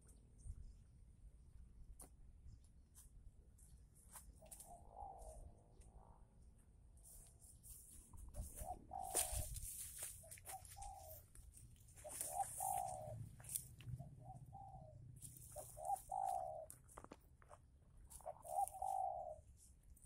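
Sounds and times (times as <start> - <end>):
dove cooing: 4.4 - 6.2, 8.3 - 9.6, 10.2 - 17.2, 18.1 - 19.6.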